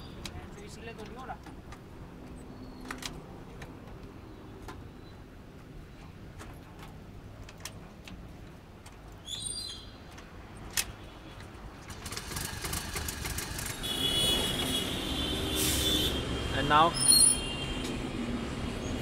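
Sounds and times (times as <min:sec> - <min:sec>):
wind and road noise: 0:00.0 - 0:19.0
scooter engine starting and running: 0:11.8 - 0:14.4
short high squeal: 0:16.9 - 0:17.6.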